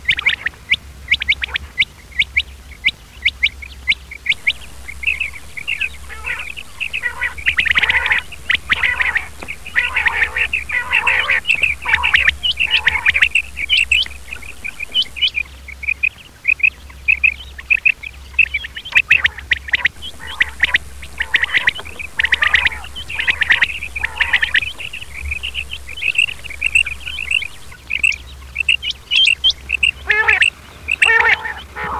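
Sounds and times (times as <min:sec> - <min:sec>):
quail chirping: 0:03.3 - 0:15.4, 0:17.8 - 0:31.9
steady low hum: 0:04.3 - 0:15.7, 0:19.7 - 0:30.0.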